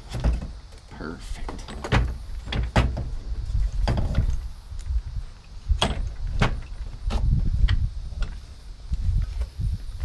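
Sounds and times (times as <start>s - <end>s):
metal knocks and clunks: 0.0s - 0.6s, 1.4s - 4.4s, 5.8s - 8.4s.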